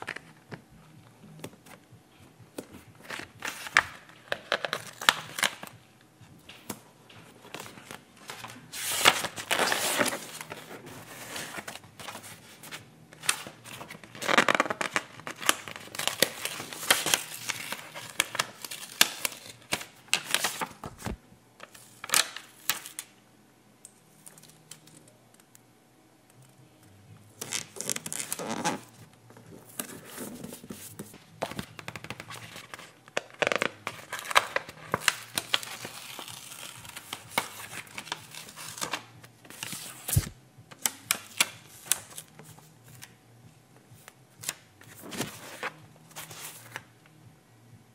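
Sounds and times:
stickers peeling and paper crinkling: 6.4s - 23.1s, 27.4s - 29.0s, 29.6s - 43.1s.

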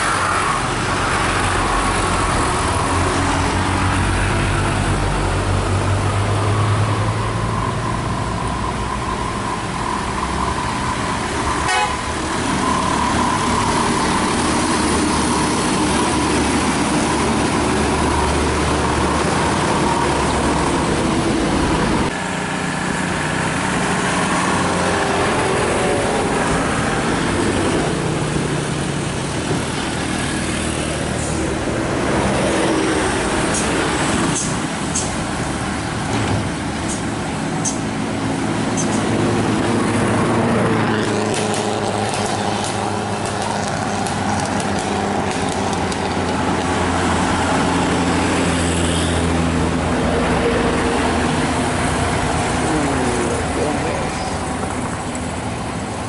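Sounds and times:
heavy road traffic: 0.0s - 56.0s
vehicle horns tooting: 11.6s - 12.1s.

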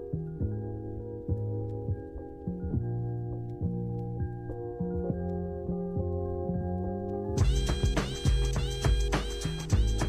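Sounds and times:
soft instrumental music: 0.0s - 10.0s.

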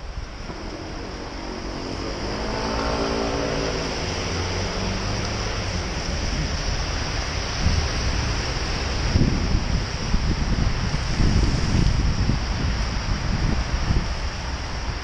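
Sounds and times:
tyre hiss on wet road: 0.0s - 15.0s
wind noise on microphone: 0.0s - 15.0s
vehicle engine passing: 0.4s - 9.1s.

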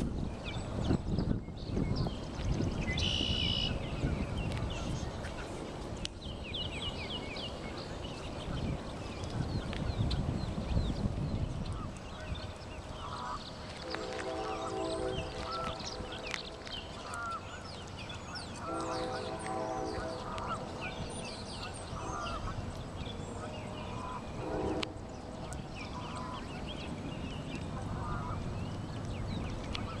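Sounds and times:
songbirds chirping: 0.0s - 30.0s
waterfowl honking: 13.0s - 17.7s, 18.3s - 22.7s, 23.4s - 26.6s, 27.7s - 28.5s.

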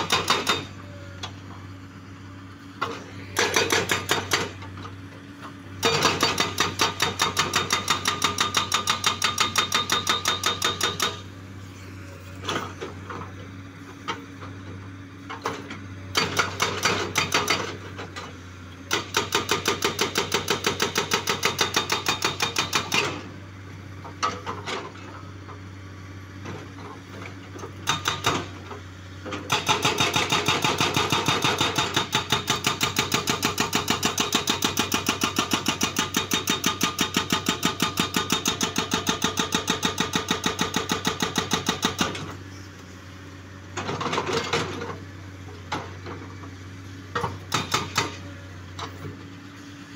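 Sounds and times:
hydraulic breaker hammering rock: 0.0s - 0.8s, 2.8s - 4.8s, 5.8s - 11.3s, 15.3s - 18.3s, 18.9s - 23.3s, 27.6s - 42.4s, 47.1s - 49.2s
excavator engine running: 0.0s - 49.9s.

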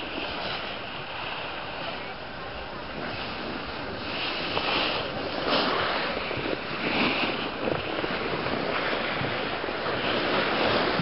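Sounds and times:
wind buffeting microphone: 0.0s - 11.0s
skis sliding on packed snow: 3.1s - 11.0s.

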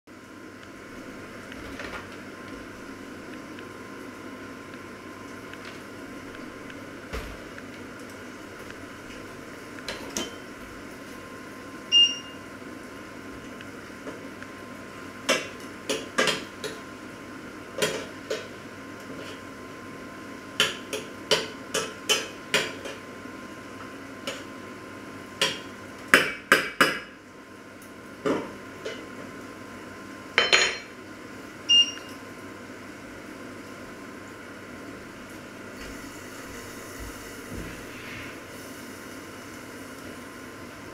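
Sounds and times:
faint steady hum: 0.1s - 40.9s
pots and utensils clinking: 30.4s - 30.9s.

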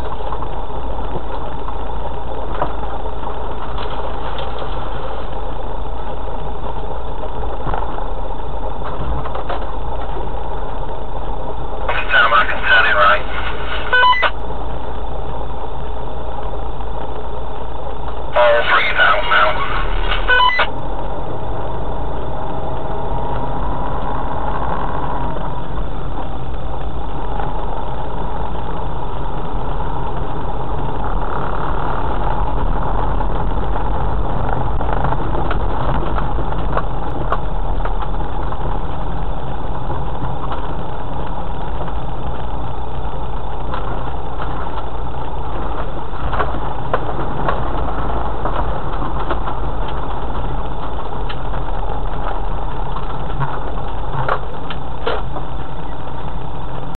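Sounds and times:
engine running: 0.0s - 56.9s
tyre and road rumble: 0.0s - 56.9s
knocks and rattles: 45.5s - 55.7s.

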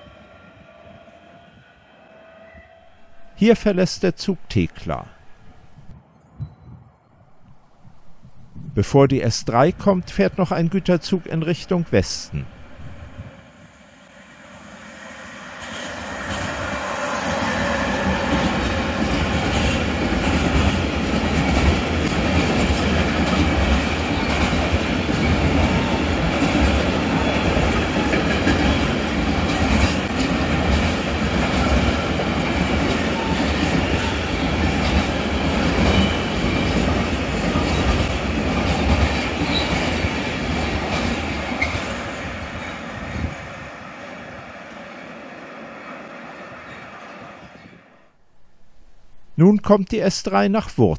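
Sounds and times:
freight train rumbling past: 0.0s - 3.9s, 11.8s - 48.2s.

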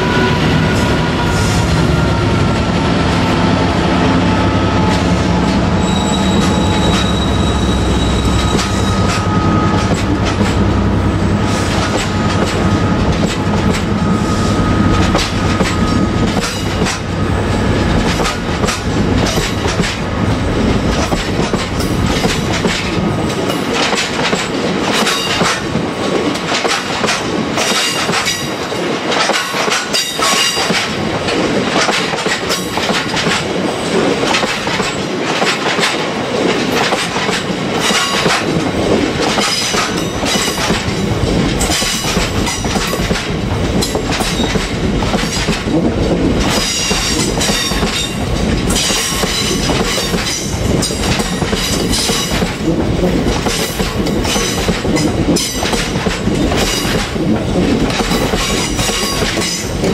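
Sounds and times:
low train rumble: 0.0s - 59.9s
train wheels clattering: 0.5s - 59.9s
thin steady squeal: 5.8s - 9.8s.

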